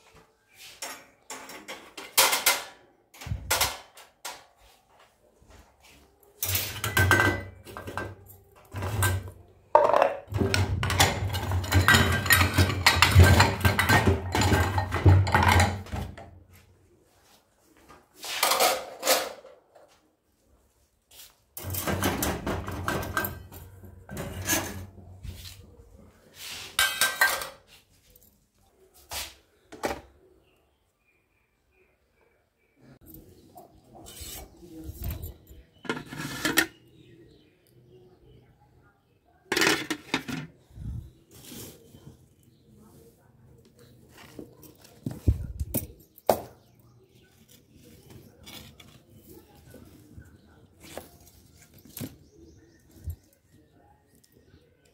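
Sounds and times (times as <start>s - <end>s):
dishes clattering on metal rack: 0.8s - 4.5s, 6.4s - 16.3s, 18.4s - 19.6s, 21.6s - 25.0s, 26.8s - 27.7s, 35.8s - 36.8s, 39.5s - 40.6s.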